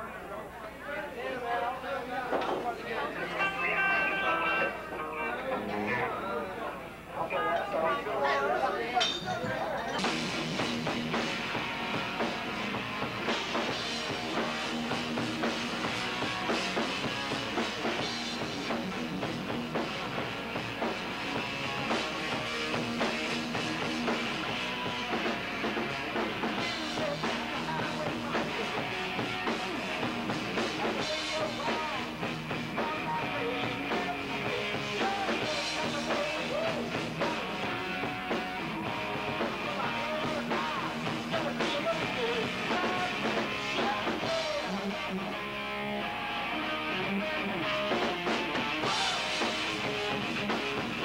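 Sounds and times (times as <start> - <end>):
electric guitars: 3.0 - 6.4, 9.4 - 51.0
person singing: 3.2 - 6.1, 24.4 - 50.5
drum kit: 9.4 - 51.0.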